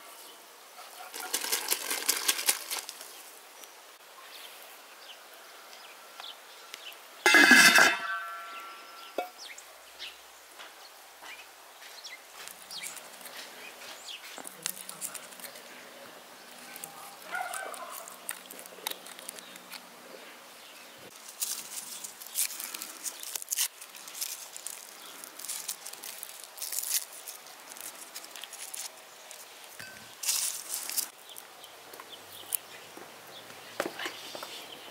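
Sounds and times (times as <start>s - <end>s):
garlic skins crackling: 1.0s - 3.7s, 12.3s - 20.3s, 21.1s - 32.8s.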